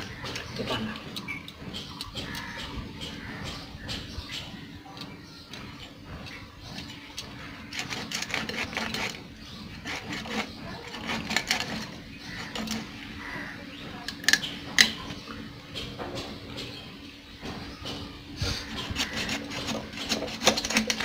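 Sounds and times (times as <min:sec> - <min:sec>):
blade scraping fish: 0:07.7 - 0:12.8, 0:18.6 - 0:21.0.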